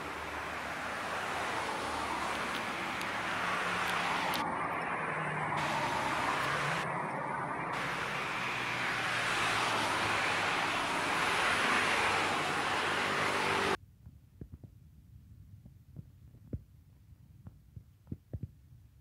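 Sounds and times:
road traffic rushing: 0:00.0 - 0:13.8.

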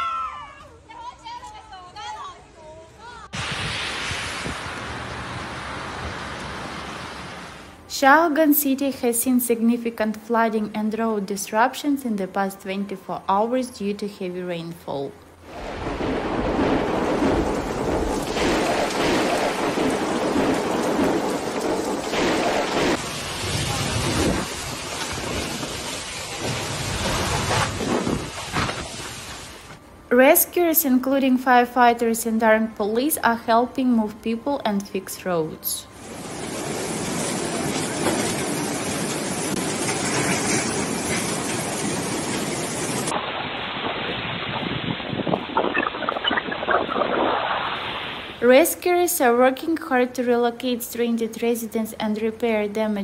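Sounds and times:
storm-force wind: 0:03.3 - 0:07.8, 0:15.4 - 0:29.8, 0:35.9 - 0:48.5
torrential rain pouring: 0:03.4 - 0:07.8, 0:15.4 - 0:29.8, 0:35.9 - 0:48.4
floodwater rushing: 0:15.4 - 0:29.8, 0:36.0 - 0:48.4.

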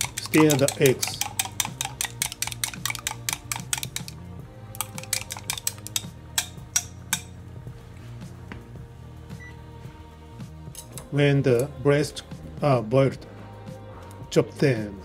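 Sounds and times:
wooden utensil clicking on glass: 0:00.0 - 0:04.2, 0:04.8 - 0:07.4
background music: 0:00.0 - 0:15.0.

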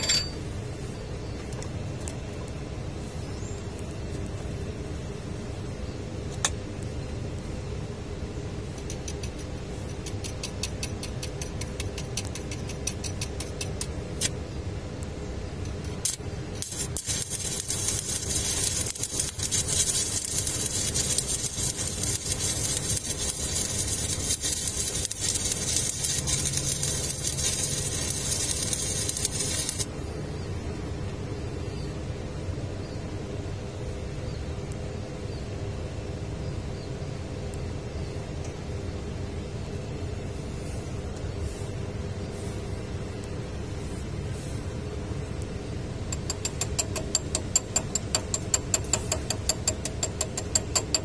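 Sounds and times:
rapid welding ticks: 0:08.7 - 0:14.4, 0:15.6 - 0:29.9, 0:46.1 - 0:51.0
welding arc crackling: 0:15.7 - 0:29.9, 0:46.2 - 0:51.0.

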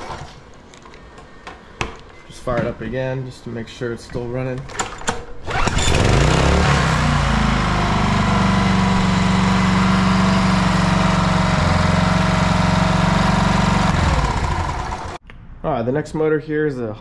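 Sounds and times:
outboard motor running: 0:05.8 - 0:15.2.

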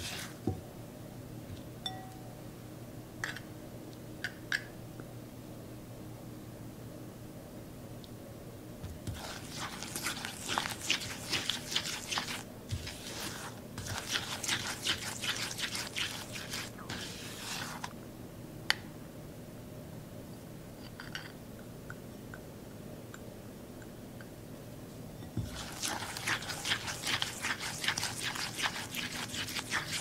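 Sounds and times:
spatula scraping in glass bowl: 0:00.0 - 0:00.4, 0:09.1 - 0:17.9, 0:25.3 - 0:30.0.

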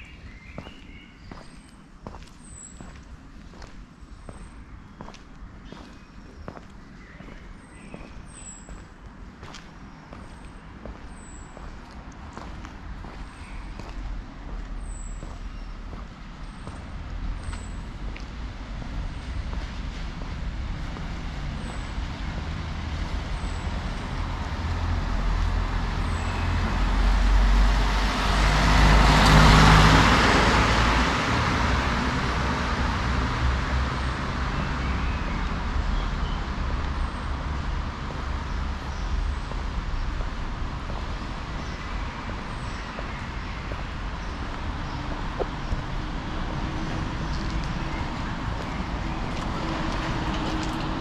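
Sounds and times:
vehicle engine rumble: 0:00.0 - 0:51.0.

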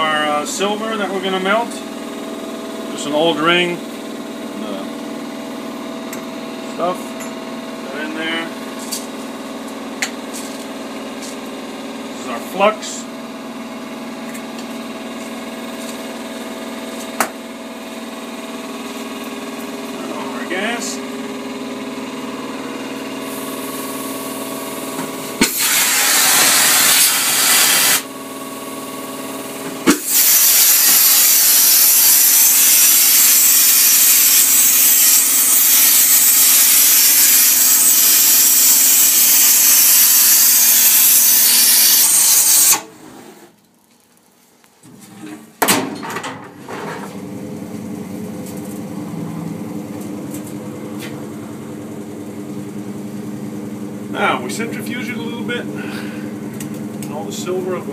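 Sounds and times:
gas torch hissing: 0:23.2 - 0:24.4, 0:25.3 - 0:28.1, 0:29.8 - 0:42.9
torch ignition click: 0:25.4 - 0:28.0
machine hum with tones: 0:46.7 - 0:57.9.

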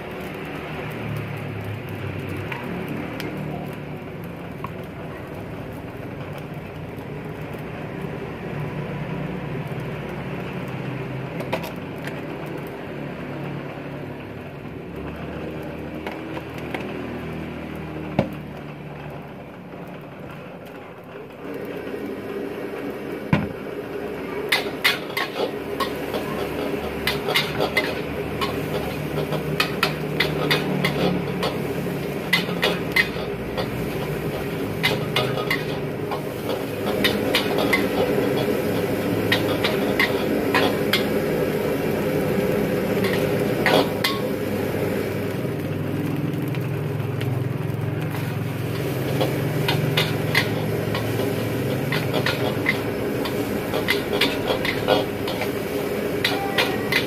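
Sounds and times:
metal spatula scraping a wok: 0:24.5 - 0:44.4, 0:48.1 - 0:57.0.

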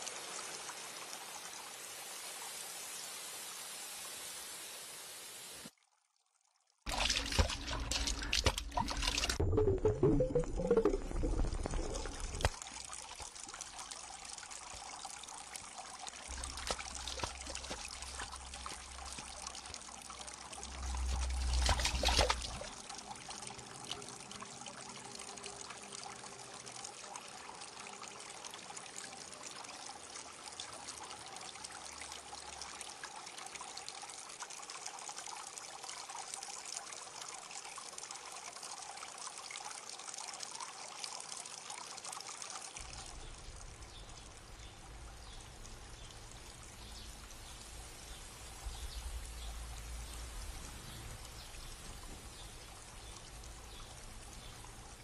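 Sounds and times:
stream water trickling over stones: 0:00.0 - 0:04.3, 0:05.6 - 0:55.0
low rumble: 0:07.2 - 0:12.5, 0:20.6 - 0:22.8.

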